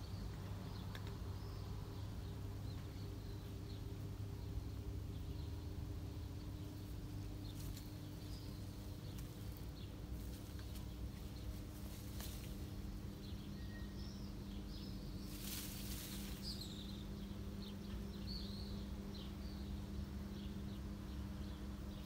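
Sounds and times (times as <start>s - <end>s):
small birds chirping: 0.0s - 22.0s
steady low hum: 0.0s - 22.0s.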